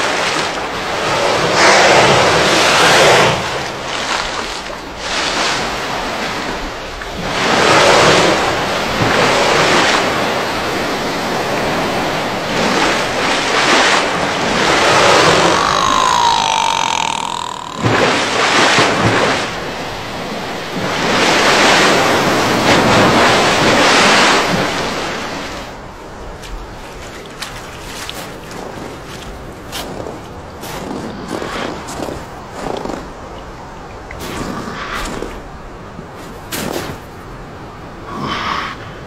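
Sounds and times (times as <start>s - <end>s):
ocean waves washing: 0.0s - 32.5s
killer whale whistle: 14.9s - 18.8s.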